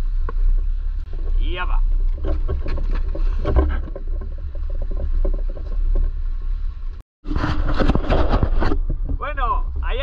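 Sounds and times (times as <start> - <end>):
footsteps and gear on rock: 1.1 - 6.4.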